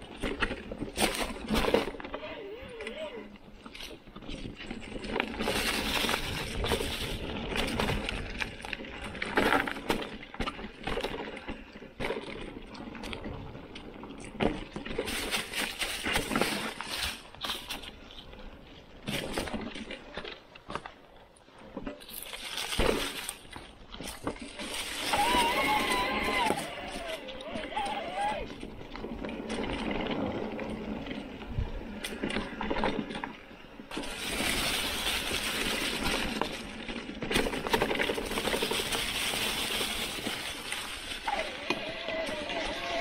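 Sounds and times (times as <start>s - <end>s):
bike knocking and rattling: 0.0s - 43.0s
bike tyres crunching through leaves: 3.5s - 20.8s, 21.6s - 43.0s.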